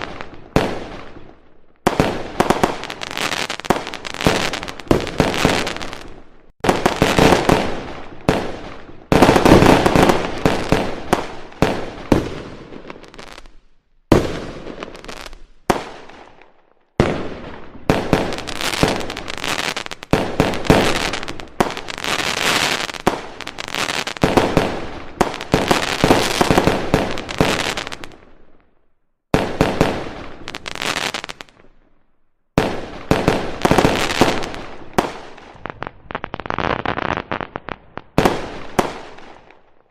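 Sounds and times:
firework crackling: 1.9 - 13.5, 17.9 - 28.2, 29.4 - 31.6, 32.7 - 39.6.

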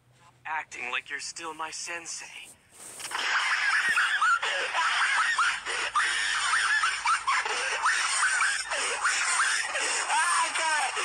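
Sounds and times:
cartoon character laughing: 3.1 - 11.0.

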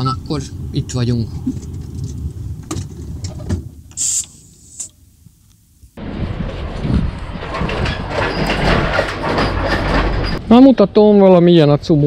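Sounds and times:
wind buffeting microphone: 0.0 - 3.9, 6.0 - 10.5
compressed air hiss: 3.9 - 5.0
low rumble: 5.9 - 10.5.

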